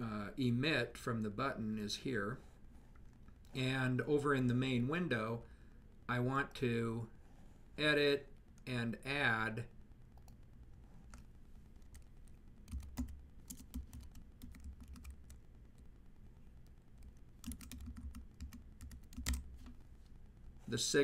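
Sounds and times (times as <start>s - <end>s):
typing on computer keyboard: 12.7s - 15.4s, 17.0s - 19.5s.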